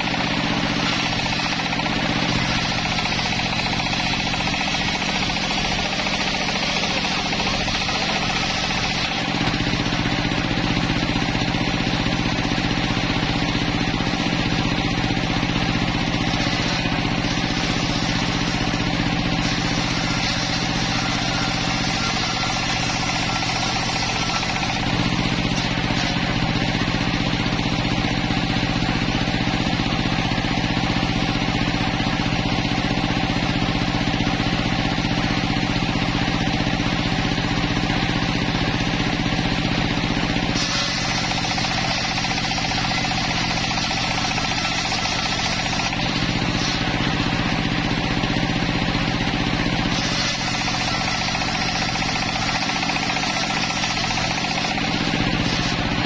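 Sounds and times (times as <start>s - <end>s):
circular saw ripping wood: 0.0s - 27.7s, 40.2s - 48.7s, 49.3s - 56.0s
saw motor drone: 0.0s - 56.0s.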